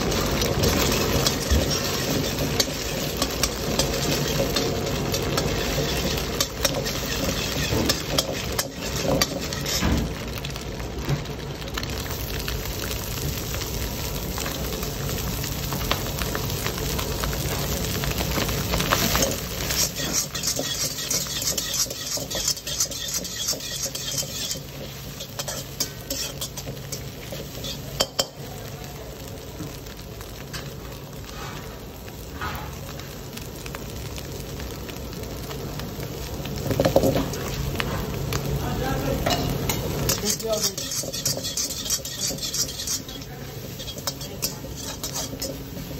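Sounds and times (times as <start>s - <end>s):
oil sizzling in a wok: 0.0s - 45.9s
metal spatula scraping a pan: 0.4s - 10.0s, 18.9s - 28.2s, 39.3s - 45.9s.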